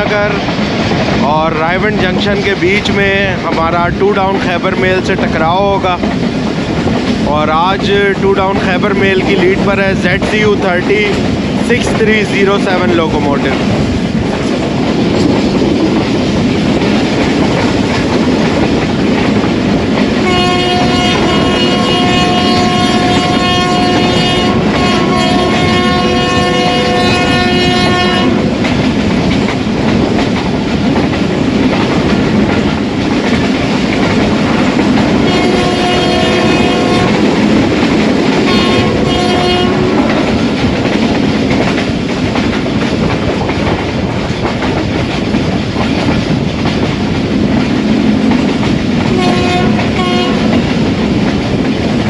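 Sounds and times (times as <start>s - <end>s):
train wheel clatter: 0.0s - 52.0s
locomotive horn blasts: 20.2s - 28.4s, 35.3s - 37.2s, 38.5s - 40.0s, 49.1s - 50.5s.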